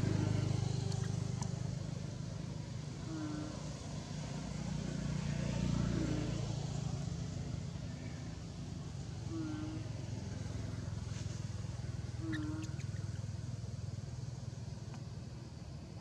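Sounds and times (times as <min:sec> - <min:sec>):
vehicle engine humming: 0:00.0 - 0:16.0
short low calls: 0:02.9 - 0:03.8, 0:09.2 - 0:10.0, 0:12.0 - 0:13.1.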